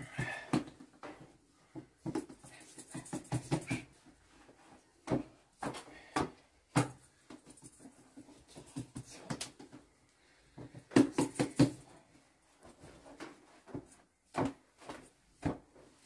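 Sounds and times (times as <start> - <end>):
hands slapping dough: 0.0 - 4.3, 5.0 - 7.8, 10.5 - 11.9, 13.1 - 15.9.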